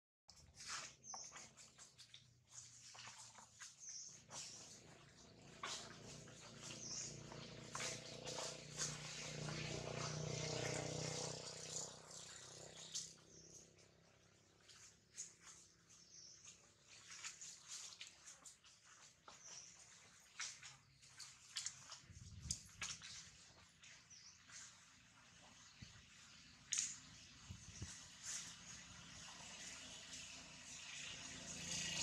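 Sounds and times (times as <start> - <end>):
rustles and ticks: 0.3 - 32.0.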